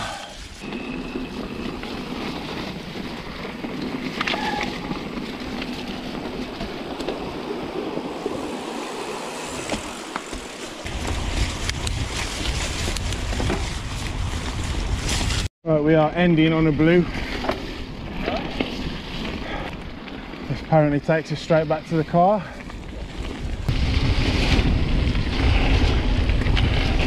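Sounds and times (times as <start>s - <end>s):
bike tyre noise: 0.0s - 27.0s
wind rumbling on microphone: 0.0s - 27.0s
bike knocks and rattles: 9.6s - 15.3s.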